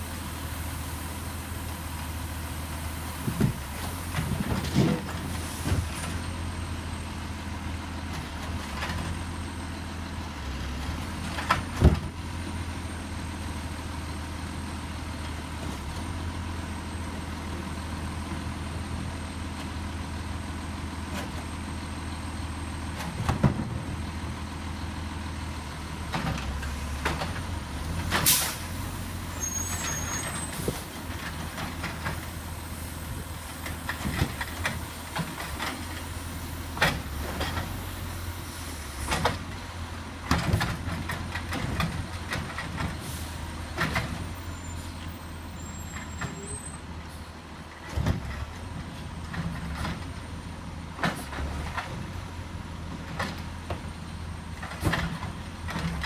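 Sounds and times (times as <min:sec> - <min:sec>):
short sharp air hiss: 0:28.2 - 0:28.7.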